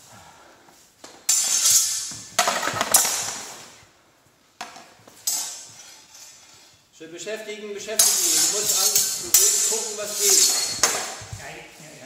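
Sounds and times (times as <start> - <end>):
steel swords clashing: 1.3 - 3.3, 5.2 - 6.4, 8.0 - 11.2.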